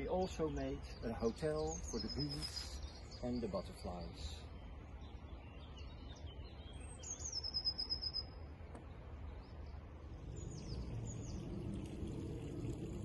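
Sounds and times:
bird chirps: 0:00.0 - 0:12.0
songbirds singing and trilling: 0:00.0 - 0:13.0
low background rumble: 0:08.3 - 0:13.0.

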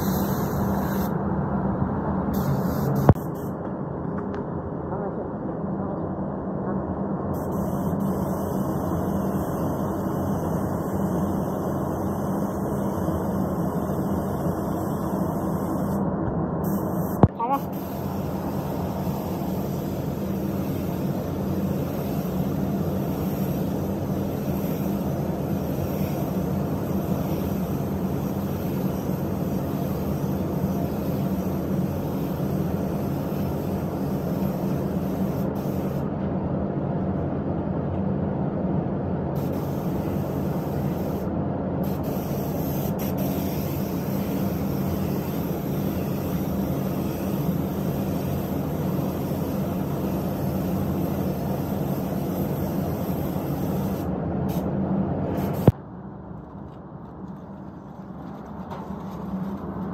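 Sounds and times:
spray gun hissing: 0:00.0 - 0:01.1, 0:02.4 - 0:03.5, 0:16.7 - 0:36.0, 0:39.4 - 0:54.6
spray booth air handling drone: 0:00.0 - 0:01.2, 0:02.3 - 0:03.7, 0:07.3 - 0:36.3, 0:39.3 - 0:55.8.

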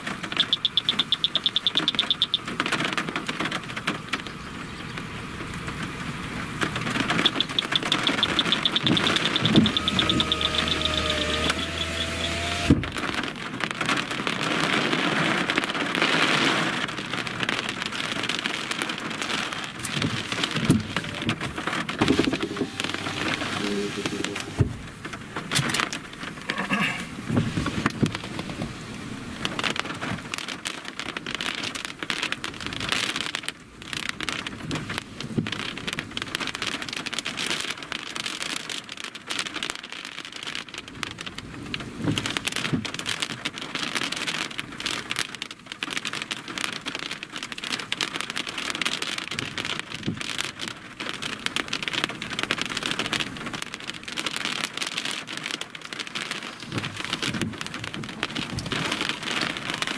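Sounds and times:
rain on vehicle roof: 0:00.0 - 0:59.9.

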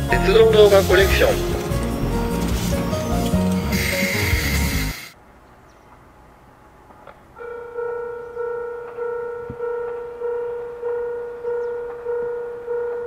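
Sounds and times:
level-crossing alarm bell: 0:00.0 - 0:02.9, 0:07.4 - 0:13.0.

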